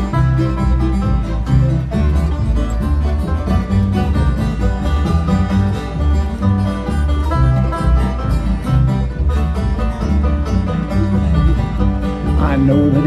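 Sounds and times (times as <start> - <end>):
fast-picked acoustic strings: 0.0 - 13.0
upright bass notes: 0.0 - 13.0.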